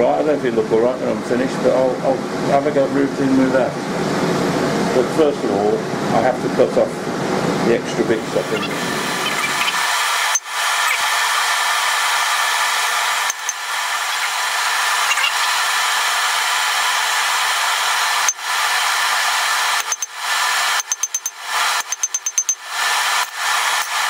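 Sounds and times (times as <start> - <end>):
forge air blast rushing: 8.2 - 20.8.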